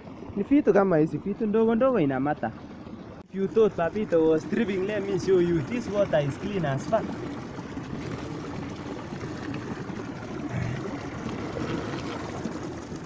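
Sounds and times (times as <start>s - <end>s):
water running and trickling: 0.0s - 13.0s
man's low vocal sound: 10.4s - 11.1s.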